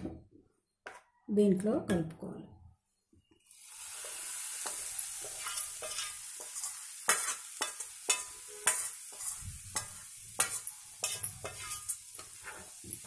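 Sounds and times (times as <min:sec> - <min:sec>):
paste sizzling in hot oil: 0:03.4 - 0:13.0
spoon scraping steel jar: 0:04.6 - 0:13.0.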